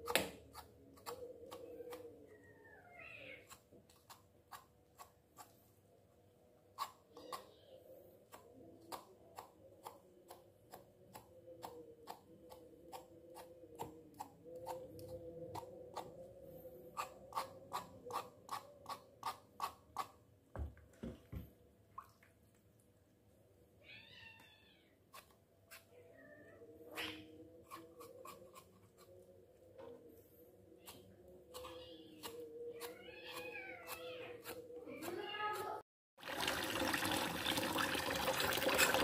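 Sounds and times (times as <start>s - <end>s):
cat meowing: 23.8s - 25.0s
knife scraping hide: 27.6s - 29.2s.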